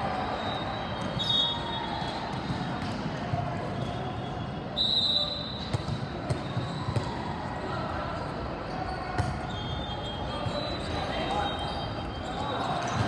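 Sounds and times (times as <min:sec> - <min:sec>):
voices in a hall: 0:00.0 - 0:13.0
referee's whistle blasts: 0:00.3 - 0:02.8, 0:03.7 - 0:07.0, 0:09.3 - 0:12.7
volleyballs being hit and bouncing: 0:01.9 - 0:04.0, 0:05.6 - 0:07.2.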